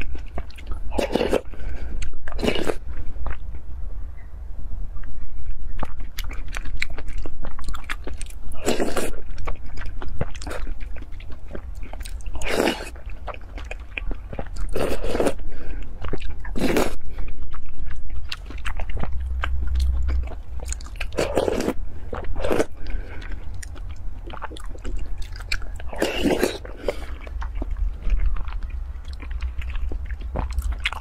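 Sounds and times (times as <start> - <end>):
wet chewing clicks: 0.0 - 3.6, 5.0 - 31.0
steady low hum: 0.0 - 31.0
person slurping from a spoon: 25.9 - 27.4.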